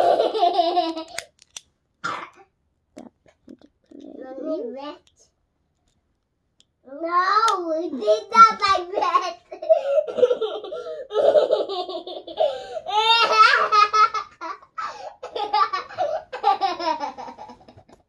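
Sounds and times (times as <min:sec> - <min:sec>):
girl laughing: 0:08.0 - 0:14.6.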